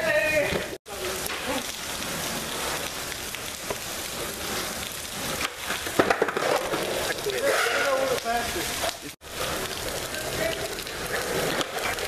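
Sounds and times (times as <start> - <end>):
rain hissing: 0.0 - 12.0
skateboard clacking on concrete: 5.3 - 8.2, 10.3 - 12.0.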